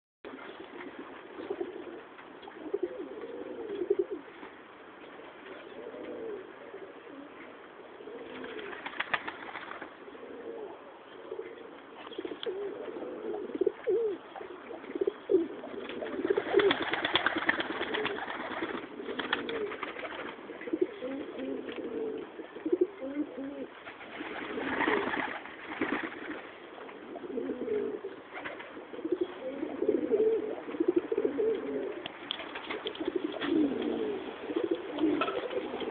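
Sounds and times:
pigeons cooing: 0:00.3 - 0:04.4, 0:05.4 - 0:35.9
rustling bursts: 0:15.8 - 0:20.4.

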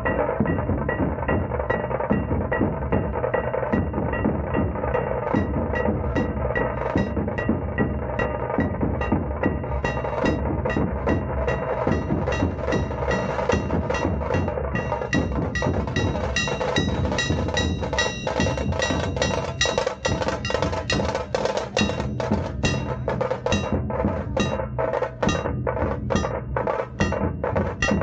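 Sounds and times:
dhol drums playing fast rhythm: 0:00.0 - 0:28.0
high ringing tone: 0:09.8 - 0:21.2.

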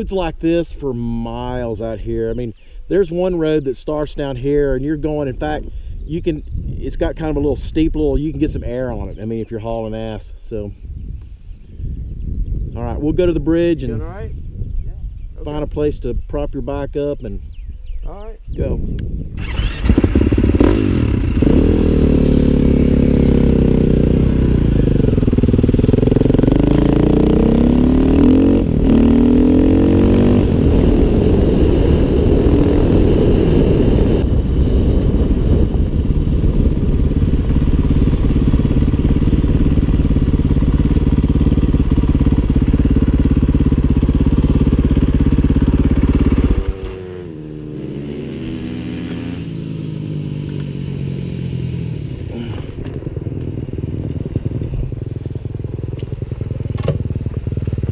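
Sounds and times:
dirt bike engine revving: 0:19.4 - 0:57.9
tyres on gravel road: 0:37.0 - 0:57.9.

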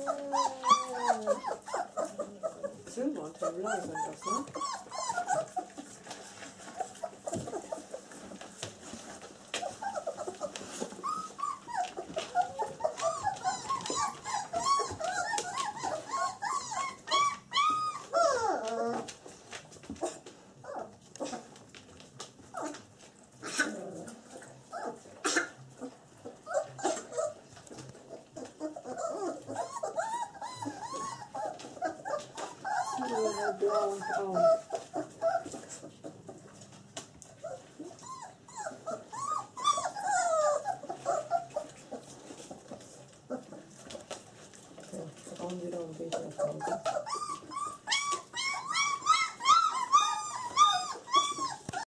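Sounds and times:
puppies whimpering and squeaking: 0:00.0 - 0:51.9
puppy growl: 0:00.0 - 0:51.9.

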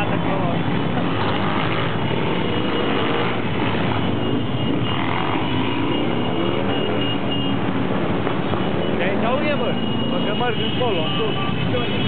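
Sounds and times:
motorcycles riding past: 0:00.0 - 0:10.8
engines revving: 0:00.0 - 0:12.0.

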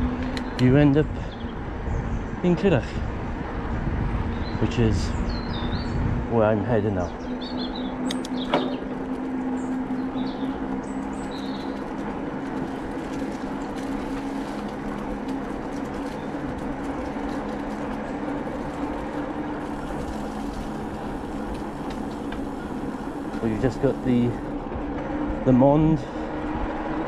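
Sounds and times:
bicycle tyre and wind noise: 0:00.0 - 0:27.0
low steady hum: 0:06.8 - 0:27.0.

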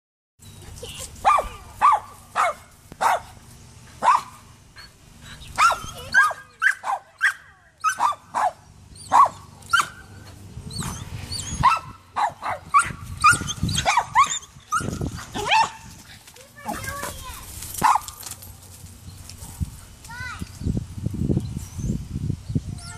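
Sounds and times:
dog barking: 0:01.2 - 0:03.4, 0:04.0 - 0:04.4, 0:05.6 - 0:10.0, 0:11.6 - 0:15.9, 0:17.8 - 0:18.2.

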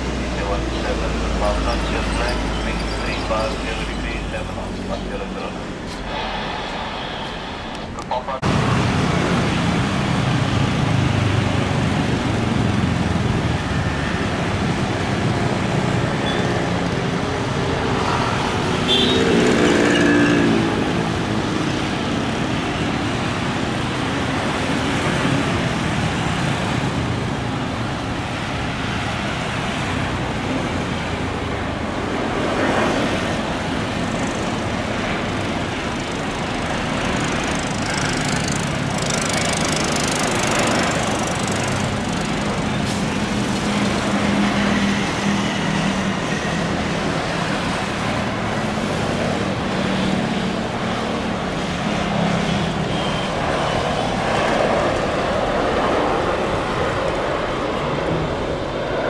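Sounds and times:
road traffic rumble: 0:00.0 - 0:59.0
vehicle passing: 0:28.4 - 0:58.4.

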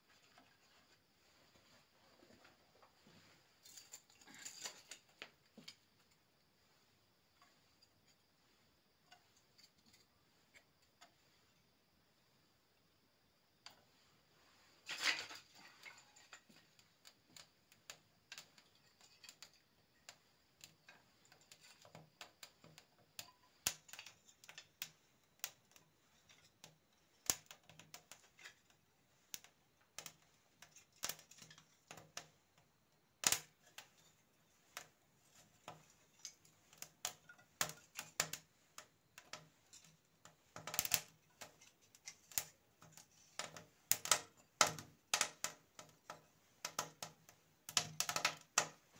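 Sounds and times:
kindling sticks clicking and clattering: 0:02.3 - 0:06.5, 0:07.3 - 0:11.4, 0:14.8 - 0:48.9
burning wood crackling: 0:14.4 - 0:48.9.

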